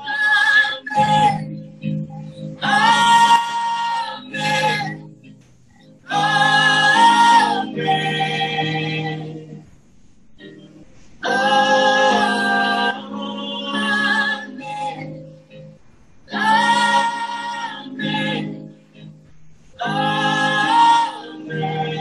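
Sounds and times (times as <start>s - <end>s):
woman singing a worship song: 0.0s - 1.6s, 2.6s - 5.0s, 6.1s - 9.6s, 11.2s - 15.2s, 16.3s - 18.7s, 19.8s - 22.0s.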